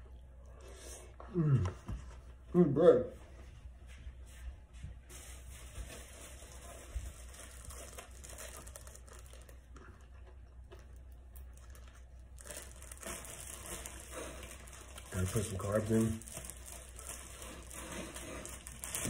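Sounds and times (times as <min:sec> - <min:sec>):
plastic bag crinkling: 0:05.1 - 0:19.0.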